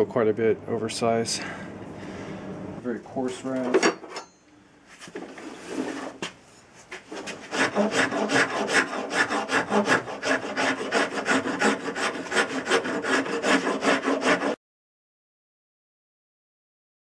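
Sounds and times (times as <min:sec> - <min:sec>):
rasp scraping wooden handle: 0:05.4 - 0:06.2, 0:07.0 - 0:14.6.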